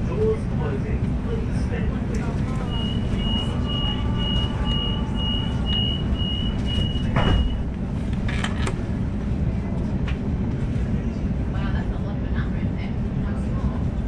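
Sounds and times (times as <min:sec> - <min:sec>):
train carriage rumble: 0:00.0 - 0:14.0
high door warning beeps: 0:02.6 - 0:07.6.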